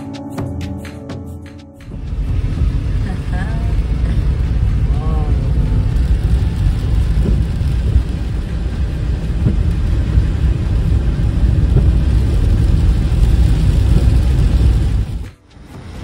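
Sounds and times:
car engine rumble: 1.6s - 16.0s
tyres on wet road: 1.8s - 16.0s.

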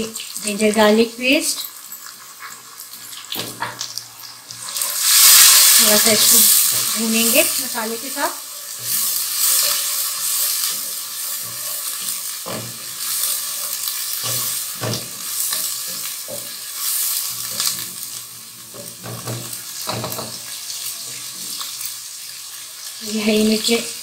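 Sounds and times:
food sizzling in hot oil: 0.0s - 24.0s
wooden spatula scraping a pot: 4.6s - 21.8s.

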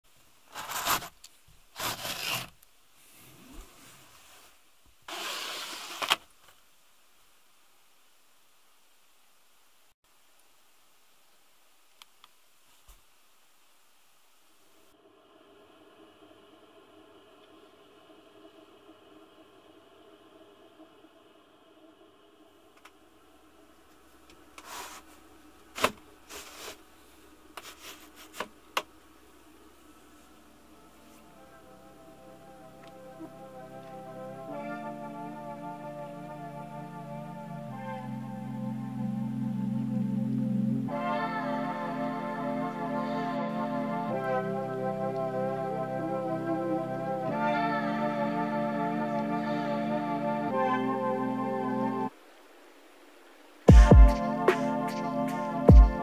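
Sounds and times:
window blinds sliding: 0.5s - 6.3s, 24.6s - 26.9s.

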